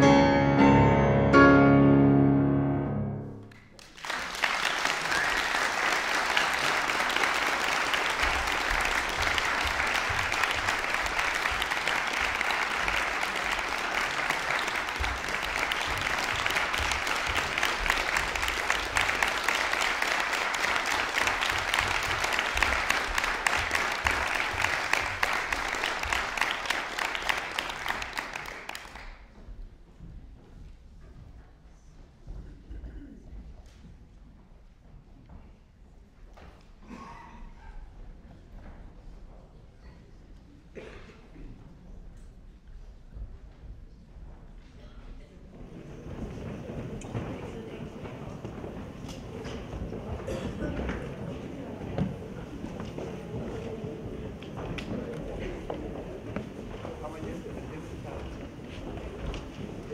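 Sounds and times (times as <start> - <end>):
piano chords: 0.0 - 3.7
audience applause: 3.5 - 29.3.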